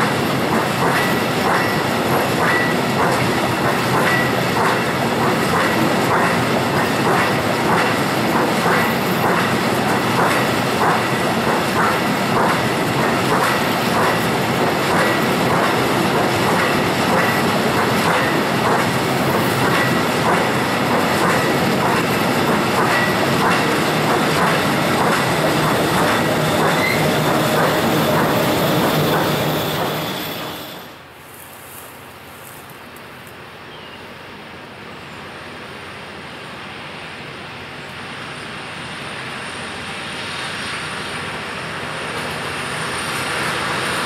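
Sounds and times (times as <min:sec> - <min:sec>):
wagon wheels clacking over rail joints: 0:00.5 - 0:30.0
faint high squeal: 0:29.3 - 0:31.0.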